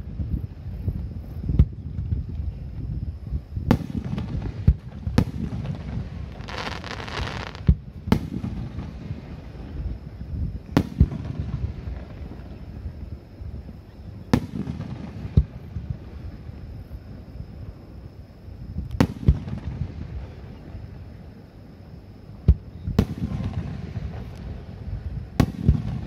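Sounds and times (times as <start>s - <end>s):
fireworks booming: 3.6s - 13.2s, 14.2s - 16.5s, 18.8s - 20.8s, 22.4s - 26.0s
crackling fireworks stars popping: 3.6s - 16.6s, 22.4s - 26.0s.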